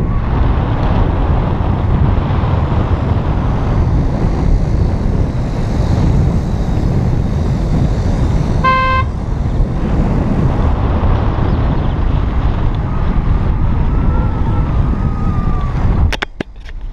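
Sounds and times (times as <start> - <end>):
road noise: 0.0 - 16.9
wind buffeting: 0.0 - 16.9
car horn beep: 8.6 - 9.2.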